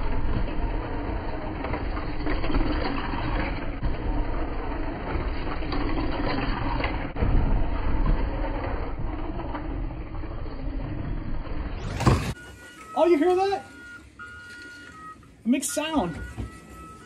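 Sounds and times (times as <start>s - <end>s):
tyres running on plastic track: 0.0s - 12.4s
slot car motor whirring: 0.0s - 17.0s.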